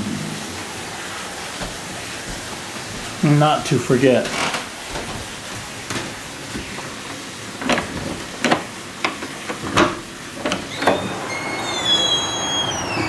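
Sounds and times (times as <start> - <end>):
heavy rain: 0.0 - 9.1, 9.7 - 13.0
footsteps on a hard floor: 1.3 - 6.8.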